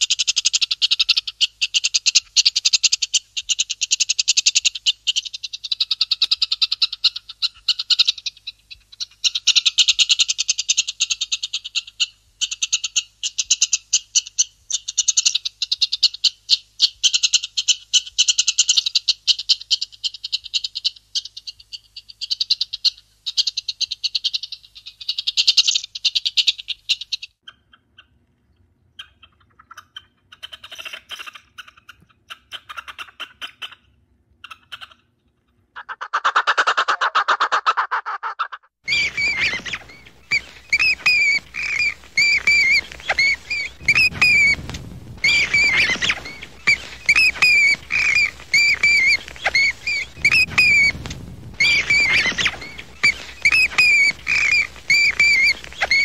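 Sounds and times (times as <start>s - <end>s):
frogs croaking in chorus: 45.2s - 50.9s.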